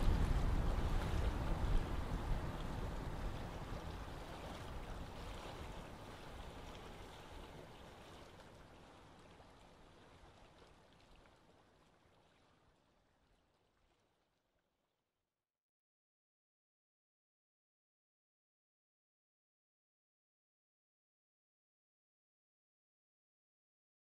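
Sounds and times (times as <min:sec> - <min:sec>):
faint water drips: 0:00.0 - 0:14.7.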